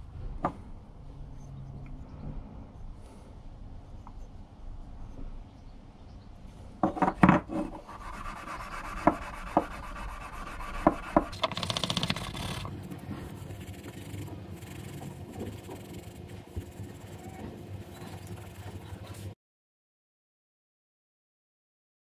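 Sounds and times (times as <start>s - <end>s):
parts knocking on workbench: 6.8s - 7.6s
steel wool scrubbing metal: 7.8s - 19.4s
scattered clicks: 11.3s - 12.7s.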